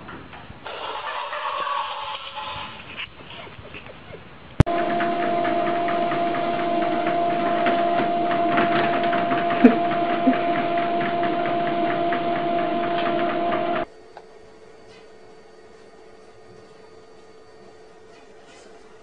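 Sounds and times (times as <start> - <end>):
treadmill motor whine: 4.6 - 18.1
treadmill belt ticking clatter: 4.7 - 13.9.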